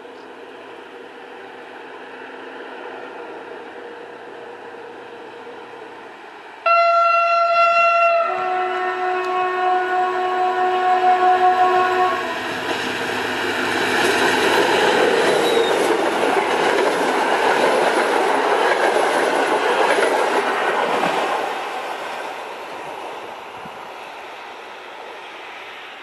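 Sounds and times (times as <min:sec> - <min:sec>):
locomotive horn: 0:06.6 - 0:12.5
train wheels rumbling on rails: 0:10.2 - 0:26.0.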